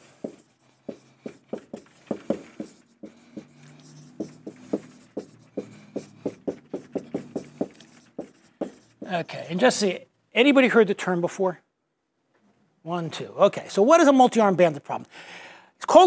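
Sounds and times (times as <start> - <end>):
marker writing on whiteboard: 0.0 - 9.8.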